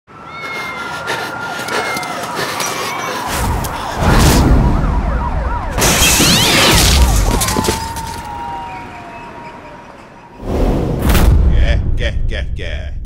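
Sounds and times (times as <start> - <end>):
wavering siren-like wails: 0.1 - 10.5
cartoon crash: 5.8 - 8.3.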